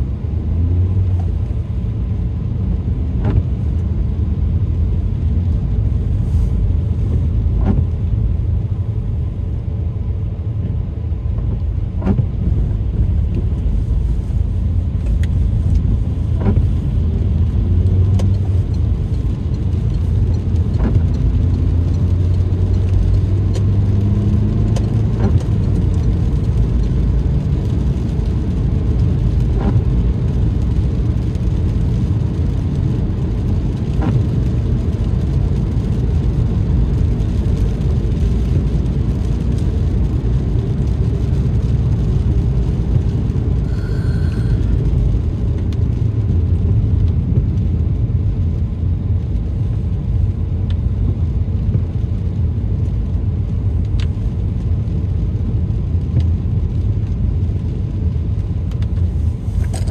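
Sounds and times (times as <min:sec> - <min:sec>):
car engine and tyres rumbling: 0:00.0 - 0:59.9.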